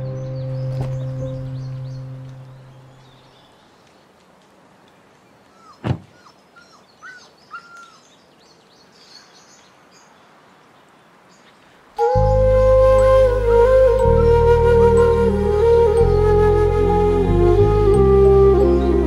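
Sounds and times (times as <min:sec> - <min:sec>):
birds chirping: 0:00.0 - 0:19.0
short bird calls: 0:05.5 - 0:08.2
heavy thump: 0:05.8 - 0:06.2.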